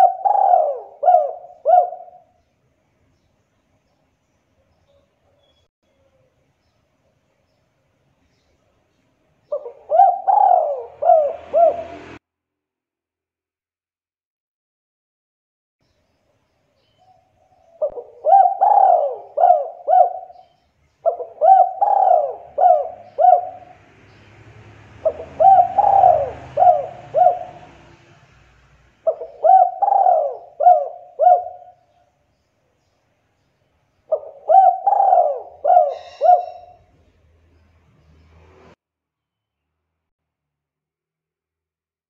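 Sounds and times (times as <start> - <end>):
dove cooing: 0.0 - 2.4, 9.5 - 12.2, 17.0 - 23.8, 25.0 - 28.0, 29.0 - 32.0, 34.1 - 36.9.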